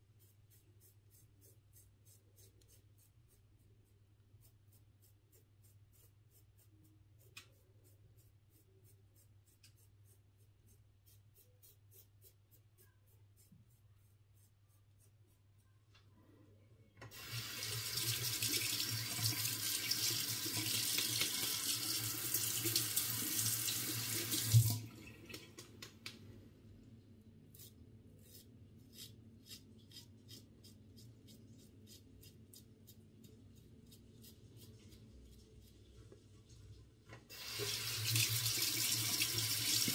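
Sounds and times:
razor scratching through stubble: 0:27.5 - 0:35.0.

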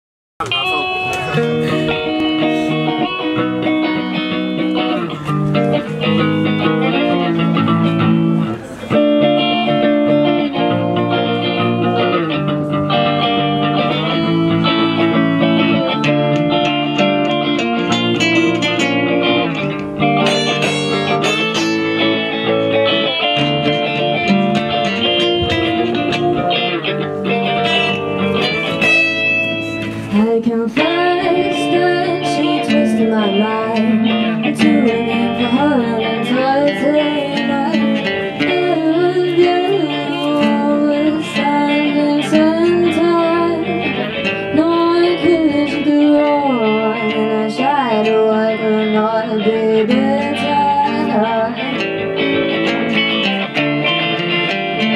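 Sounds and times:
acoustic guitars playing: 0:00.4 - 0:54.9.

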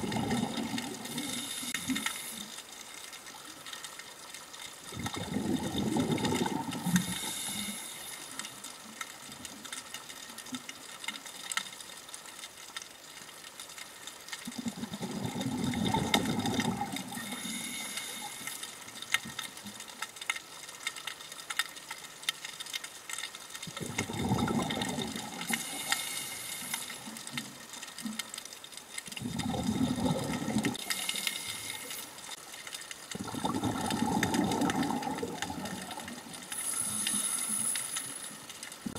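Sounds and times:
diver exhaling bubbles: 0:00.0 - 0:01.8, 0:04.9 - 0:07.3, 0:14.6 - 0:17.6, 0:23.8 - 0:25.8, 0:29.2 - 0:30.8, 0:33.1 - 0:37.0
steady underwater hiss: 0:00.0 - 0:38.9
regulator hiss: 0:01.0 - 0:02.7, 0:06.8 - 0:08.9, 0:17.0 - 0:18.8, 0:25.4 - 0:27.2, 0:30.8 - 0:32.3, 0:35.5 - 0:38.5.

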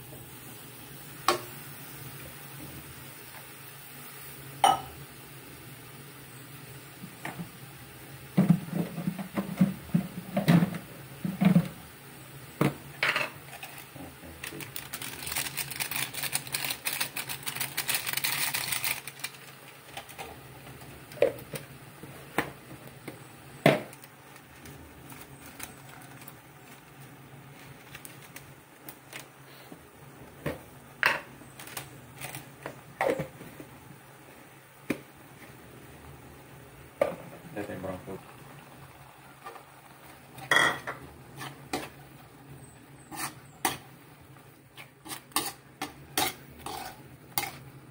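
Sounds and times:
metal spoon scraping a wok: 0:41.4 - 0:42.0, 0:43.0 - 0:43.9, 0:44.8 - 0:47.6.

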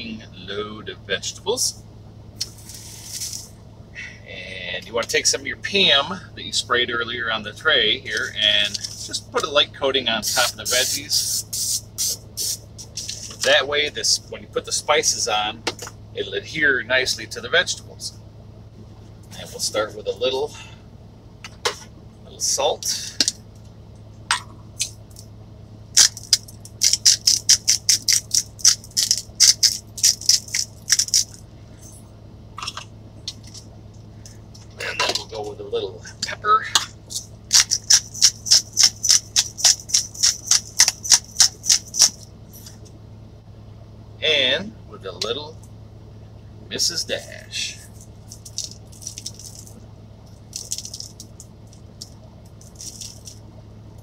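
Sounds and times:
salt grinder crunching: 0:02.4 - 0:03.5, 0:26.0 - 0:31.4, 0:37.1 - 0:42.2, 0:48.3 - 0:49.7, 0:50.5 - 0:51.4, 0:52.6 - 0:53.4
shaker bottle rattling: 0:26.0 - 0:31.4, 0:37.6 - 0:42.2, 0:48.3 - 0:49.7, 0:50.5 - 0:51.4, 0:52.6 - 0:53.4.

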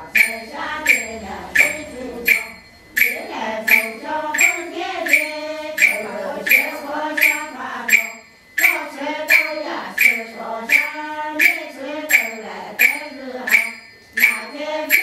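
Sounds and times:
sharp ringing strikes: 0:00.0 - 0:15.0
voices chanting together: 0:00.0 - 0:15.0.

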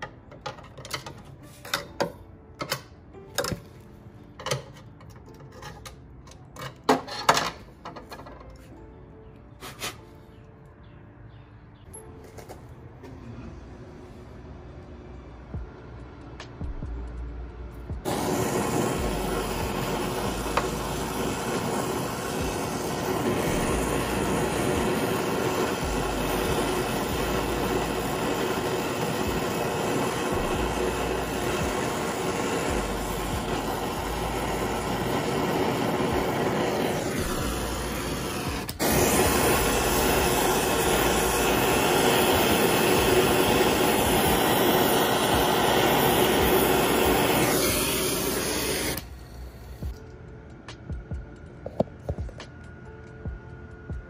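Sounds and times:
torch flame hissing: 0:18.0 - 0:50.0.

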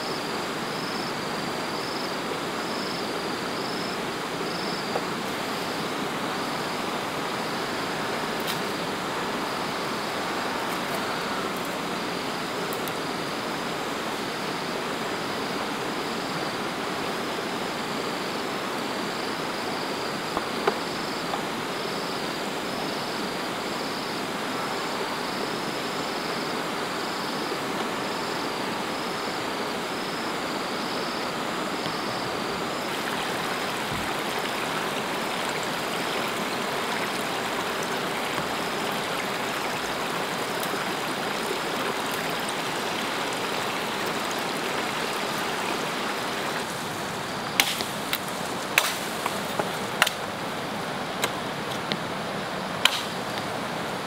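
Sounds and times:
rushing water hiss: 0:00.0 - 0:54.0.

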